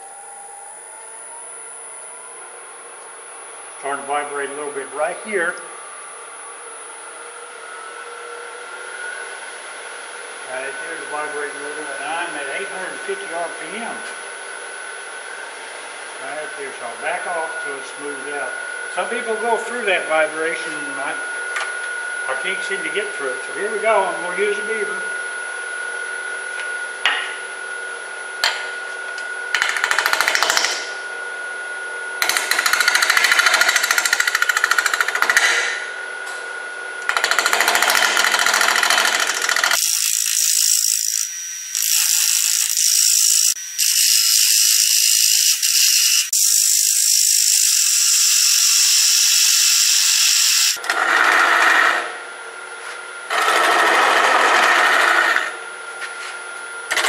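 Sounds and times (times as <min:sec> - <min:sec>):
lathe motor humming: 0:37.0 - 0:51.9, 0:53.3 - 0:55.6
lathe tool cutting wood: 0:37.1 - 0:52.2, 0:53.3 - 0:55.6.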